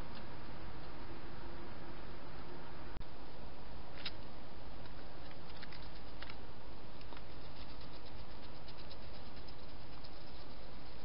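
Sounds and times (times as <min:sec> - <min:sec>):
microphone hiss: 0:00.0 - 0:11.0
hedgehog clicks and rustles: 0:04.8 - 0:06.4.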